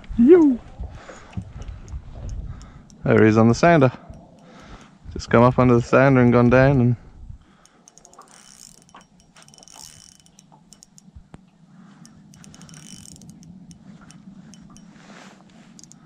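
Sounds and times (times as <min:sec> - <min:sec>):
fishing reel gears whirring and clicking: 0:01.2 - 0:04.9, 0:07.4 - 0:16.0.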